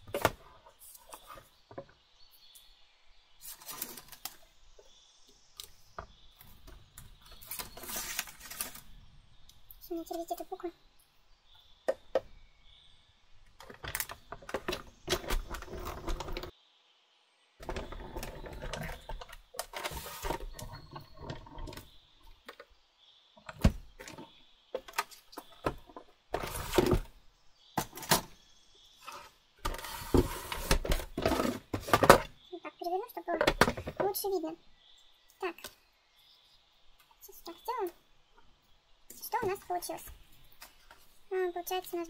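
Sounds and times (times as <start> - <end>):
plates and paper clattering: 3.4 - 4.4, 7.3 - 8.9, 17.6 - 21.9, 24.0 - 27.1, 29.0 - 32.4.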